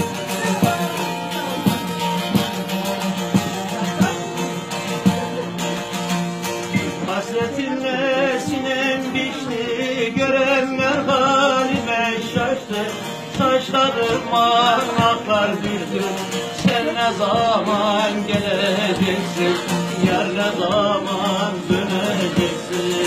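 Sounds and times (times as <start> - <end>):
plucked long-necked lute: 0.0 - 23.0.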